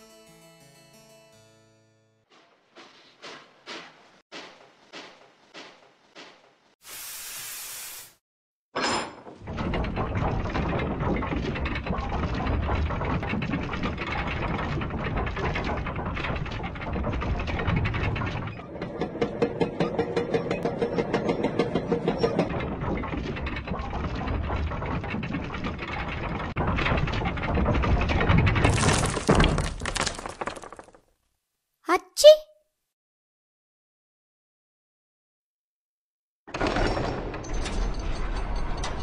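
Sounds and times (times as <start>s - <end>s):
burst with hiss: 6.8s - 8.2s
rapid chain clanking: 9.5s - 28.9s
grinding rumble: 9.5s - 30.7s.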